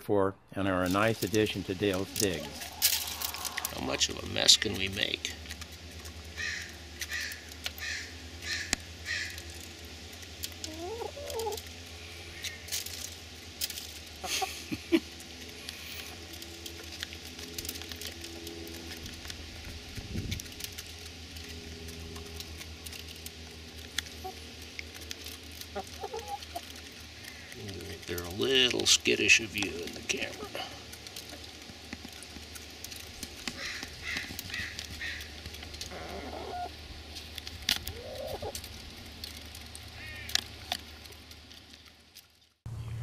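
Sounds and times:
hens clucking: 0.7s - 9.8s, 10.4s - 12.8s, 14.0s - 17.4s, 22.0s - 40.7s
beaks tapping on hand: 33.3s - 35.6s.

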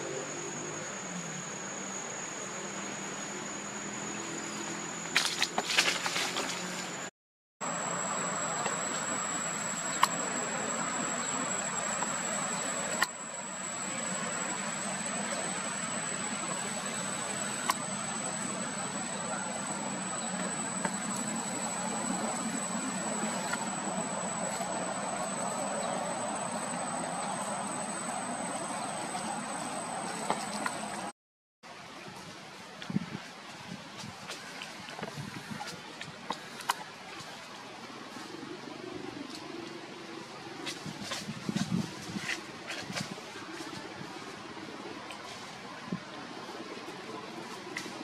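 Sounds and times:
monkeys scuffling on dry ground: 5.1s - 7.1s
thin high tone: 7.6s - 31.1s.

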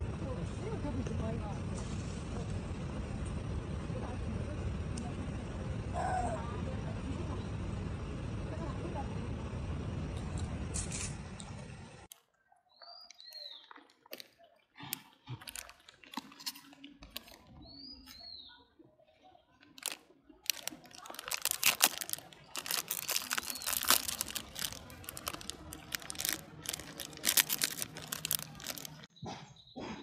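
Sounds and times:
plastic packet crackling: 15.4s - 17.5s, 19.6s - 29.1s.

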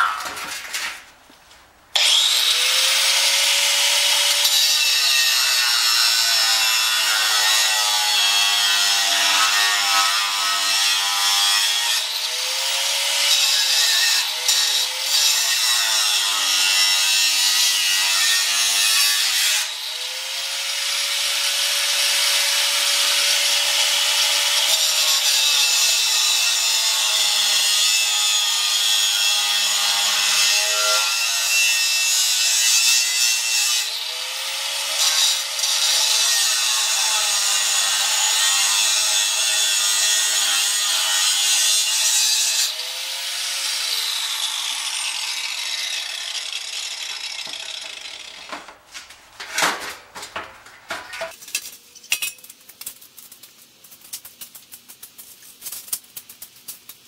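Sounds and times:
angle grinder grinding steel: 2.0s - 51.4s
knocks and clatter: 48.4s - 51.6s.

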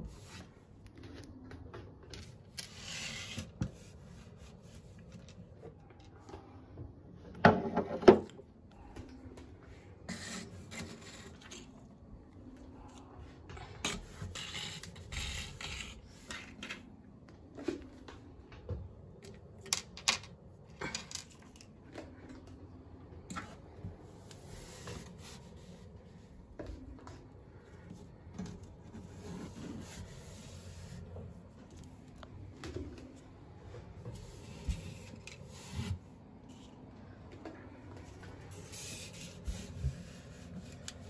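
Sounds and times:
surface rubbing and brushing: 2.6s - 5.2s, 27.9s - 31.6s, 34.0s - 36.8s, 38.1s - 41.0s
small objects clicking on a shelf: 19.1s - 22.6s.

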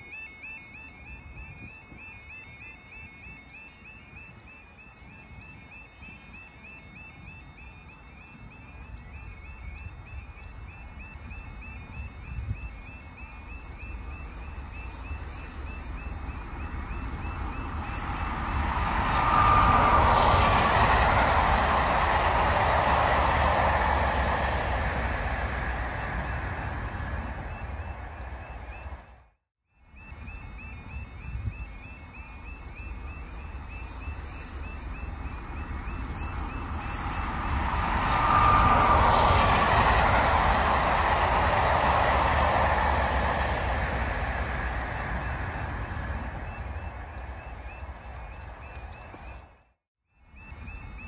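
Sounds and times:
low rumble: 11.2s - 29.3s, 32.6s - 49.6s
steam train running past: 13.8s - 29.0s, 32.8s - 49.4s.

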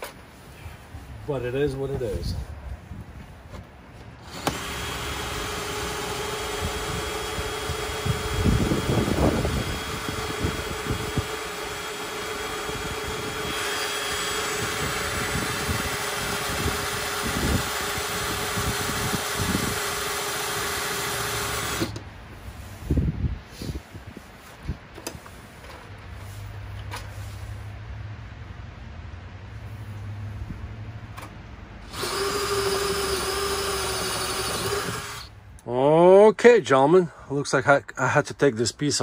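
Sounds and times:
cordless drill boring steel: 4.2s - 22.0s, 31.8s - 35.4s.

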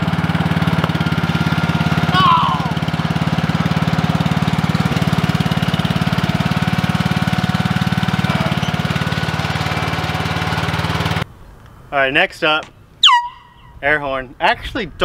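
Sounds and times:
roller engine pulsing: 0.0s - 11.3s.

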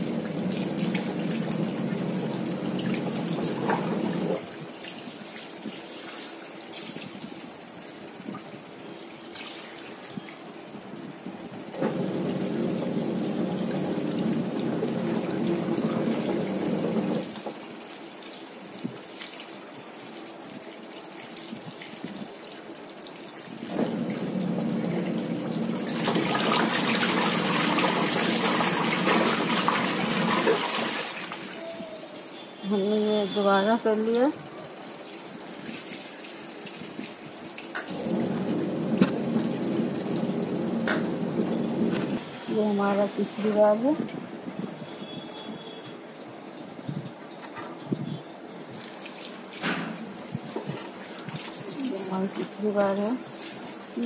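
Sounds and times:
washing machine motor humming: 0.0s - 4.8s, 11.5s - 17.8s, 23.6s - 34.3s, 37.9s - 43.8s
water pouring and splashing: 0.0s - 44.0s, 48.7s - 54.0s.

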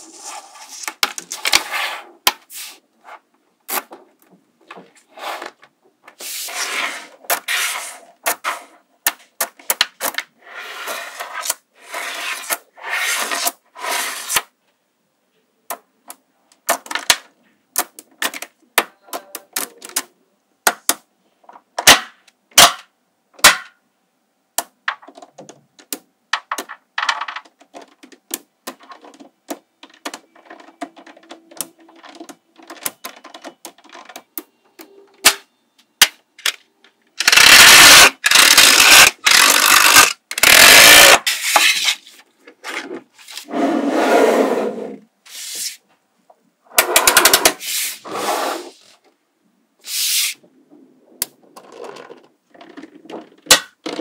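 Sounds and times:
magnetic balls clicking: 37.2s - 41.2s.

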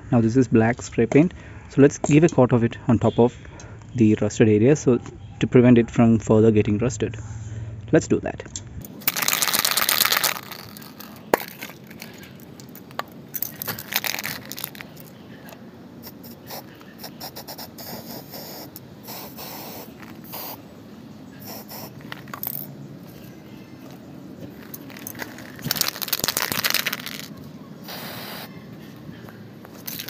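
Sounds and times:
spray can ball rattling: 9.0s - 15.1s, 16.0s - 20.6s, 21.4s - 22.7s, 24.6s - 28.5s, 29.7s - 30.0s
spray paint hissing: 9.1s - 12.2s, 12.8s - 15.1s, 16.0s - 20.7s, 21.4s - 22.7s, 24.6s - 28.5s, 29.8s - 30.0s.

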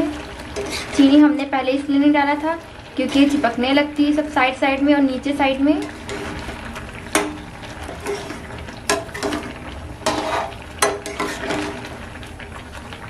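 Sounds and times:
cooking mixture sizzling: 0.0s - 13.0s
metal spatula scraping pan: 0.5s - 1.6s, 3.0s - 3.6s, 5.8s - 11.9s.

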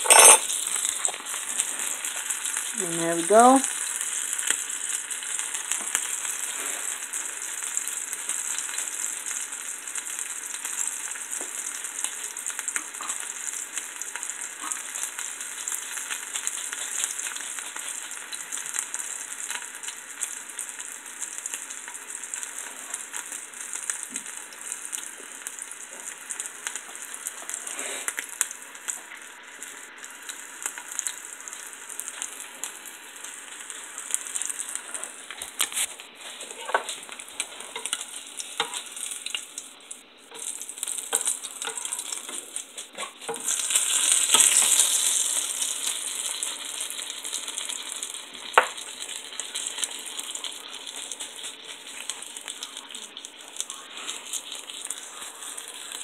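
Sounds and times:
fish frying in oil: 0.0s - 56.0s.

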